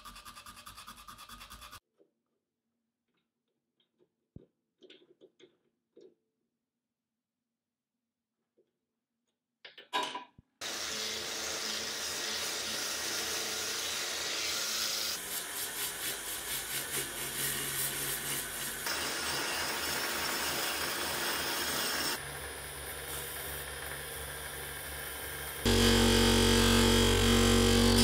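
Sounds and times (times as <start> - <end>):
pulsing motor hum: 25.6 - 28.0.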